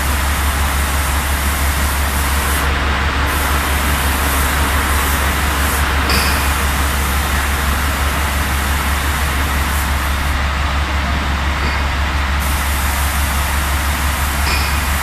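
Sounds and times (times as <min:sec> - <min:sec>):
spray gun compressed air hiss: 0:00.0 - 0:10.4, 0:12.4 - 0:15.0
extraction fan air rush: 0:00.0 - 0:10.8.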